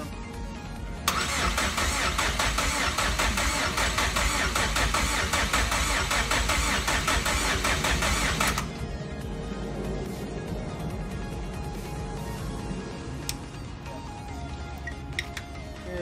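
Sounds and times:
starter motor cranking engine: 0:01.1 - 0:08.8.

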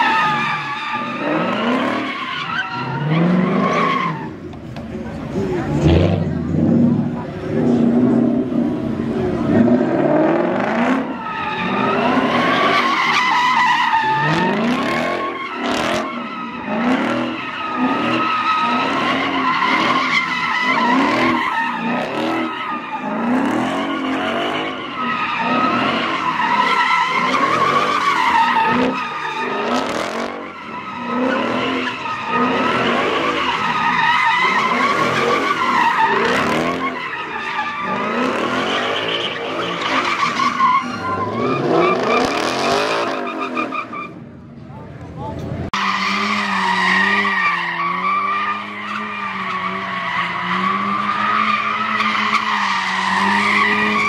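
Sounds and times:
car engine revving: 0:00.0 - 0:43.8
tyres squealing: 0:10.8 - 0:44.2, 0:45.8 - 0:54.0.

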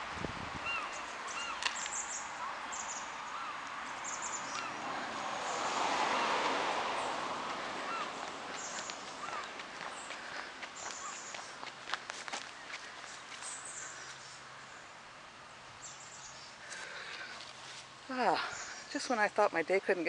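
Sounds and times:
birds calling: 0:00.6 - 0:15.0, 0:15.8 - 0:19.3
high bird chirps: 0:10.8 - 0:11.6.

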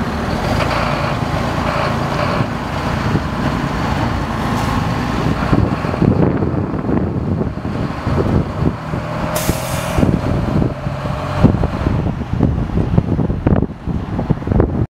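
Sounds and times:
diesel truck engine: 0:00.0 - 0:14.9
short air hiss: 0:09.4 - 0:10.1.

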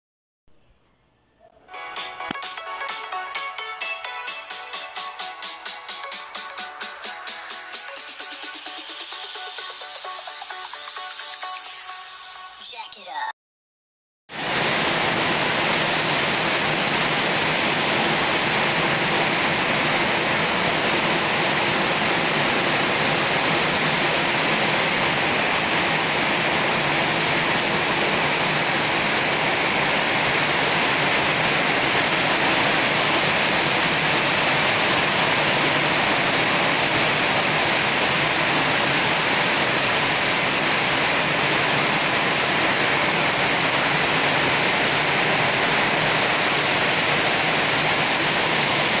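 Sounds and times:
heavy rain pouring: 0:14.3 - 0:49.0.

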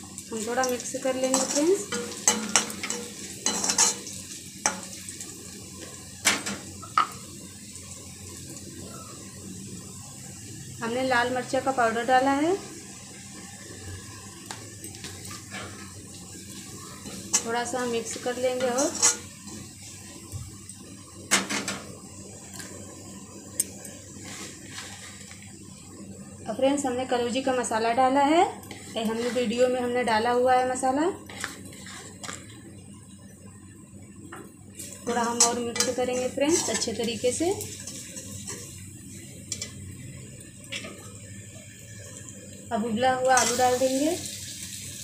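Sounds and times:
oil sizzling: 0:00.0 - 0:45.0
spatula scraping a pan: 0:01.2 - 0:05.0, 0:15.2 - 0:15.9, 0:17.0 - 0:19.6, 0:24.2 - 0:25.4, 0:28.7 - 0:29.8, 0:31.3 - 0:32.4, 0:35.1 - 0:37.0, 0:37.7 - 0:38.7.

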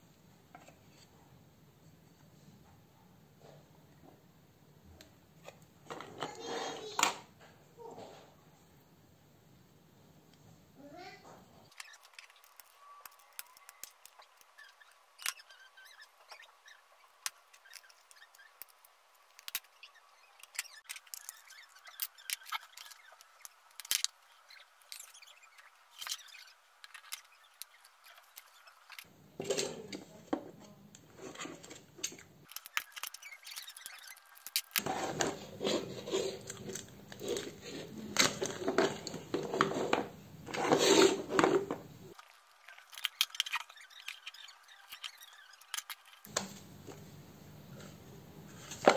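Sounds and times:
plastic rubbing and scraping: 0:11.7 - 0:30.2, 0:31.1 - 0:46.4.

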